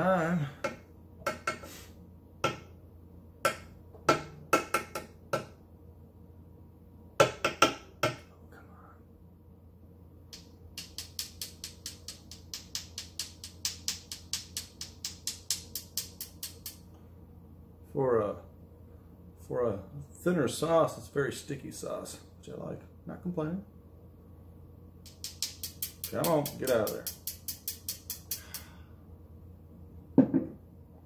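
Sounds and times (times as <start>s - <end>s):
glass bottle knocking: 30.2s - 30.6s.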